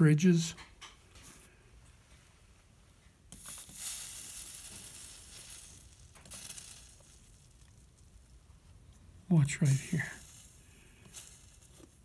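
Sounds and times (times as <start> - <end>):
flux sizzling under soldering iron: 3.2 - 12.0.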